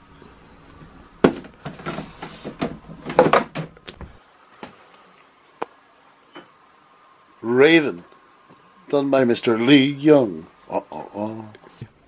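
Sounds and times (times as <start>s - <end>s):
framed prints knocking together: 1.2s - 4.1s.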